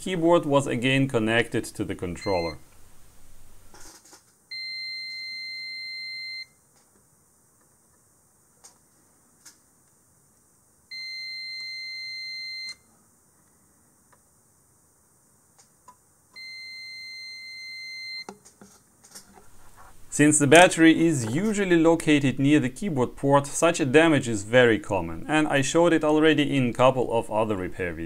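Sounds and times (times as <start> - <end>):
multimeter continuity beeps: 2.2 - 2.6, 4.5 - 6.6, 10.9 - 12.9, 16.4 - 18.3.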